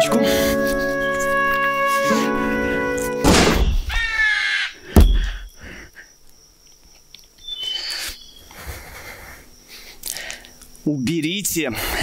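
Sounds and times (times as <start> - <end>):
loud sharp bang: 3.2 - 3.9
crow cawing: 3.9 - 5.5.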